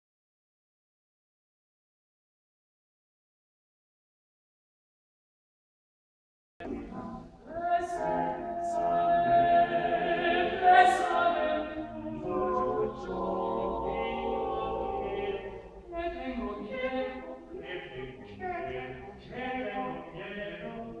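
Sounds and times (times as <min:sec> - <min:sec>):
male a cappella ensemble singing: 0:06.6 - 0:21.0.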